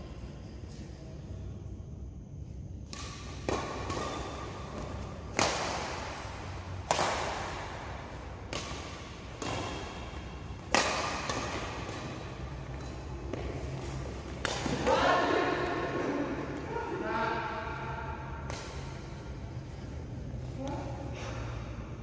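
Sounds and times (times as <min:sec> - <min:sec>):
badminton racket hitting shuttlecock: 0:02.9 - 0:16.6, 0:18.2 - 0:19.8.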